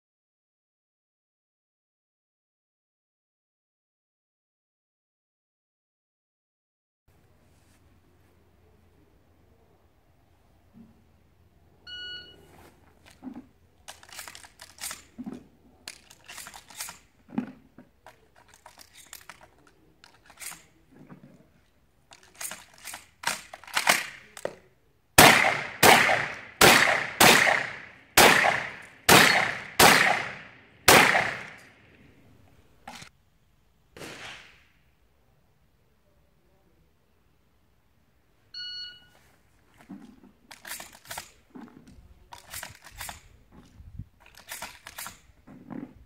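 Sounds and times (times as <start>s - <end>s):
shot timer beep: 11.9s - 12.4s, 38.6s - 39.1s
shotgun shells rattling and clicking: 13.0s - 20.8s, 22.0s - 24.5s, 32.8s - 33.1s, 39.8s - 45.8s
shotgun shots: 23.2s - 24.4s, 25.2s - 31.7s, 34.0s - 34.6s.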